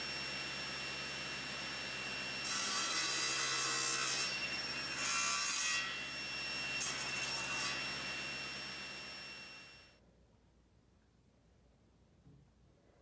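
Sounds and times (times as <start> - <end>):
saw cutting through board: 0.0 - 9.9
table saw motor whine: 0.0 - 10.0.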